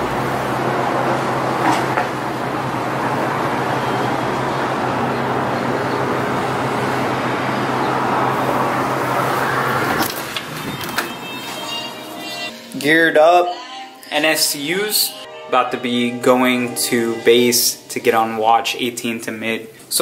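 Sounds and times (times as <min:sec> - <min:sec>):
road traffic hum: 0:00.0 - 0:12.6.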